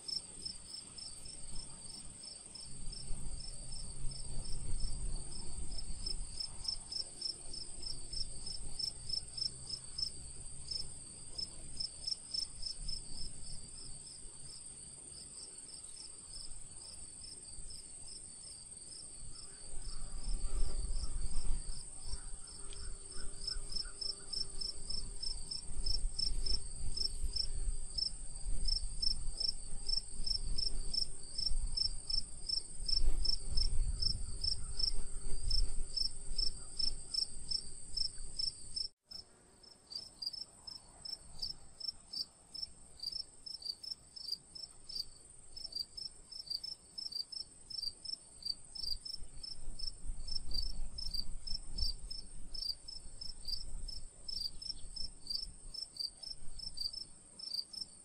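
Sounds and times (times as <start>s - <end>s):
insects chirping: 15.6s - 38.9s.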